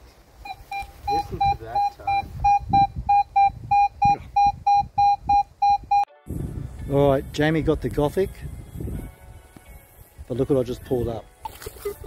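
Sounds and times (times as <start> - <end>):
rustling of grass: 0.0 - 2.4
metal detector beeping: 0.4 - 6.1.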